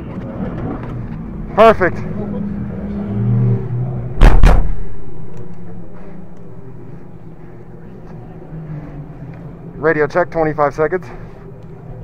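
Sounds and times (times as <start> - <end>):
steady low hum: 0.0 - 12.0
car door slamming: 4.2 - 4.8.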